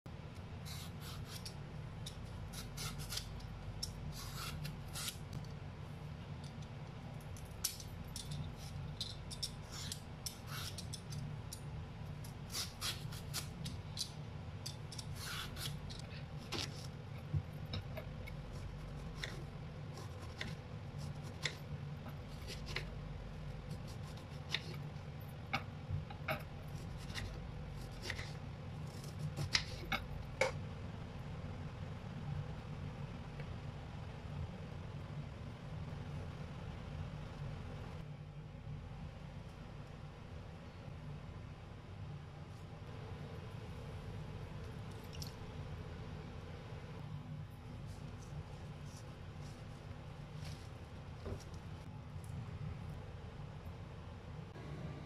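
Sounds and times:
steady low hum: 0.1s - 55.0s
peeler scraping plantain skin: 2.5s - 3.3s.

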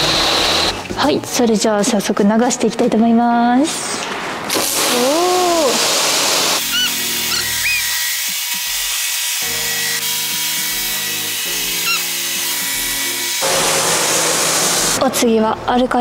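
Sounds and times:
pressure washer spray hissing: 4.5s - 15.0s
background music with held chords: 6.5s - 16.0s
short chirping notes: 6.6s - 8.2s.

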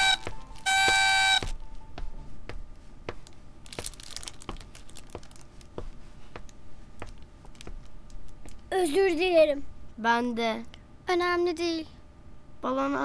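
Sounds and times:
party blowout horn honk: 0.0s - 1.5s.

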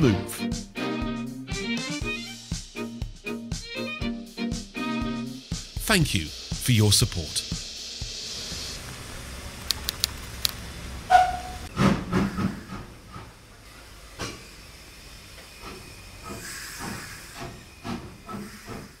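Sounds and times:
steam hissing: 4.8s - 19.0s.

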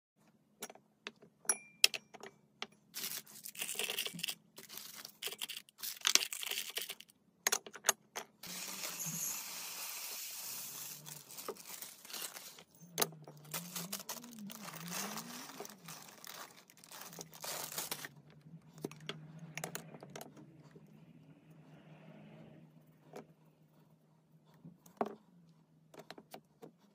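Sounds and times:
sprinkles pouring into jar: 3.0s - 7.0s, 8.4s - 12.7s, 13.5s - 18.1s
powder pouring softly: 8.4s - 12.7s
glass jars clinking: 8.4s - 17.7s.

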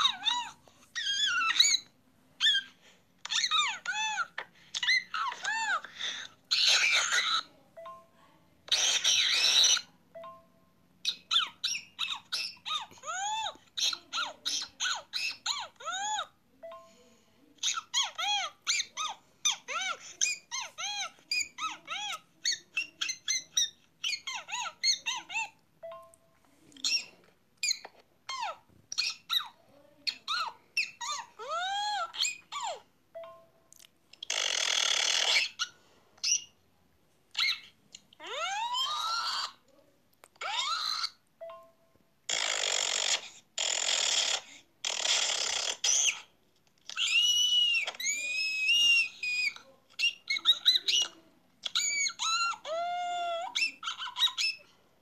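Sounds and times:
squeaky calls: 0.0s - 7.5s, 8.7s - 10.0s, 11.0s - 16.3s, 17.6s - 25.6s, 34.2s - 36.6s, 37.4s - 39.6s, 40.4s - 41.2s, 42.3s - 46.3s, 46.9s - 54.8s.

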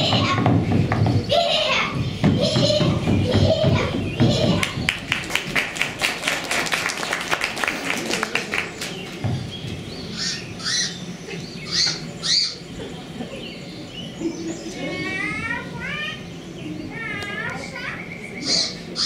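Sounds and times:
audience clapping: 4.6s - 9.2s.

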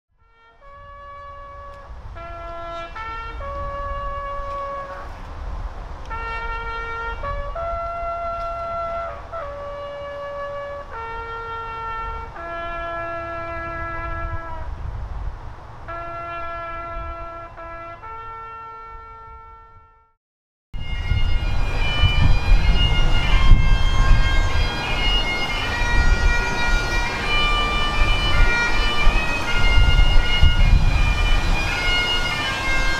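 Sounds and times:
solo wind instrument melody: 0.1s - 5.3s, 6.0s - 14.8s, 15.9s - 20.2s, 20.8s - 32.9s
low rumbling noise: 20.8s - 32.9s.

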